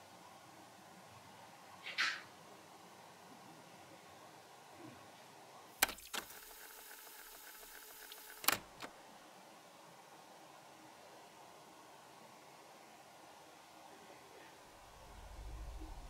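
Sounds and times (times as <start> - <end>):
faint whirring hiss: 0.0 - 16.0
tape deck mechanical click: 5.8 - 8.9.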